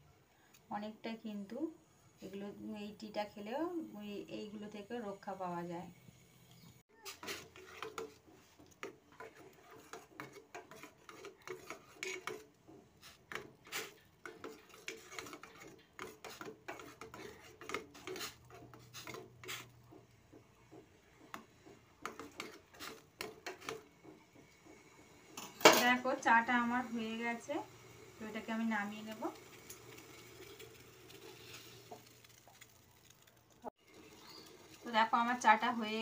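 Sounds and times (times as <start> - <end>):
spoon scraping and clinking in pot: 7.0 - 19.8, 21.4 - 23.8.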